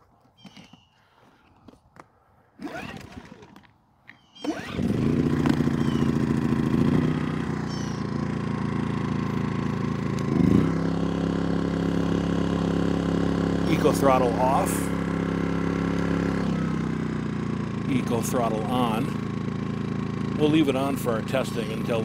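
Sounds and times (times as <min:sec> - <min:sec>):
recoil starter pull: 0:02.6 - 0:03.8, 0:04.4 - 0:22.0
generator engine running: 0:04.4 - 0:22.0.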